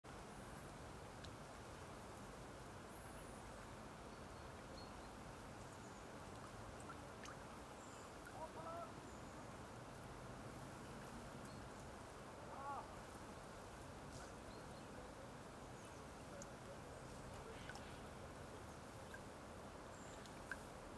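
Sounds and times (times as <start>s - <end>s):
waterfowl call: 8.2s - 9.0s.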